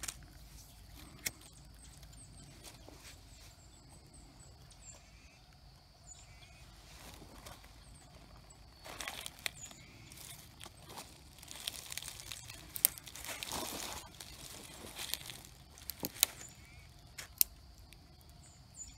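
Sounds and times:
twigs snapping: 0:00.0 - 0:02.8, 0:08.8 - 0:18.4
bird chirping: 0:00.0 - 0:18.9
dry leaves and twigs rustling: 0:00.0 - 0:18.9.

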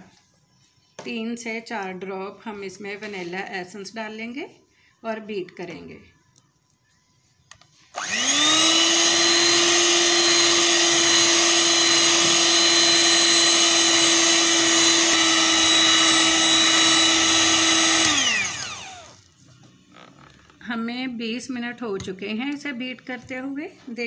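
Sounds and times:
electric mixer whining: 0:07.9 - 0:19.3.

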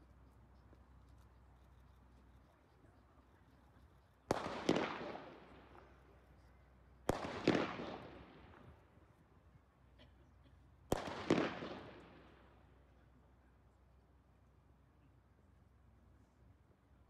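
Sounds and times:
pistol shots ringing: 0:04.3 - 0:05.8, 0:07.1 - 0:08.6, 0:10.9 - 0:12.2.

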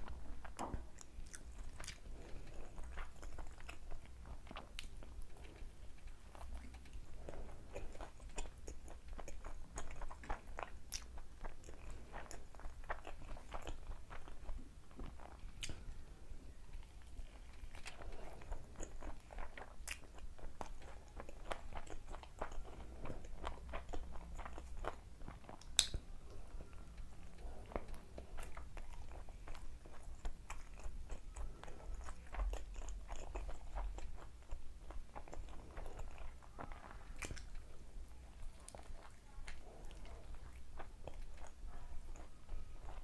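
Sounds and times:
person chewing fried chicken: 0:00.0 - 0:43.0
sharp mouth clicks: 0:25.6 - 0:26.0.

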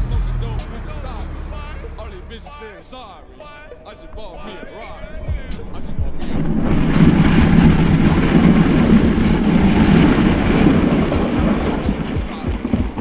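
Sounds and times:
car engine revving: 0:00.0 - 0:13.0
tyres spinning on gravel: 0:04.4 - 0:13.0
sprayed stones: 0:05.5 - 0:13.0.

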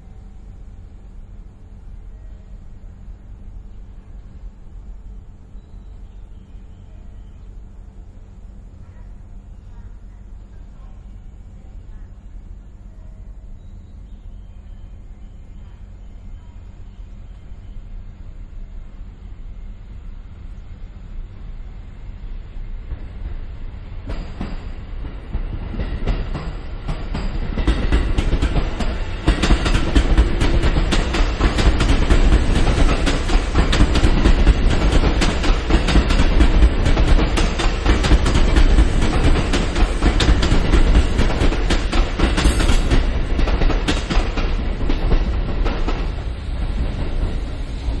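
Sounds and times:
electric train running past: 0:00.0 - 0:48.0
train wheels clacking over rail joints: 0:24.0 - 0:48.0.

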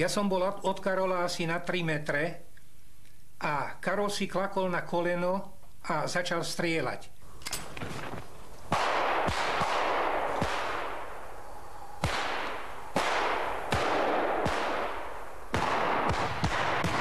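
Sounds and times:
pistol shots echoing: 0:08.7 - 0:17.0.

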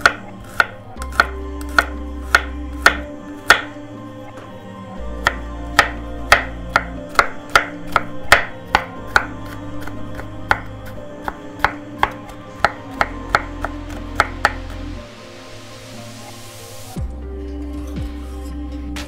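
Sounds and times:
knife chopping on wooden board: 0:00.0 - 0:03.8, 0:05.2 - 0:14.8.

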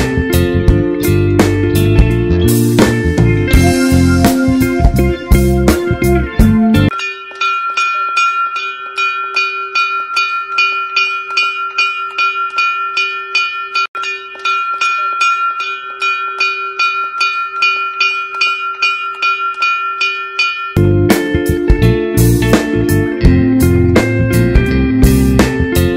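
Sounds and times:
music: 0:00.0 - 0:07.9, 0:20.8 - 0:25.9
hanging metal bell struck: 0:00.0 - 0:25.9.

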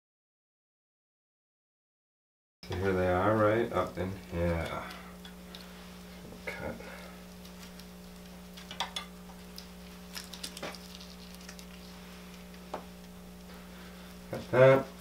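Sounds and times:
low hum: 0:02.6 - 0:15.0.

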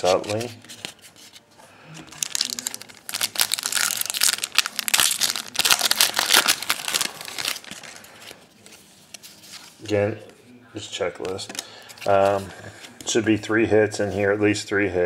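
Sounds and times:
foil wrapper tearing and crinkling: 0:02.1 - 0:08.2.

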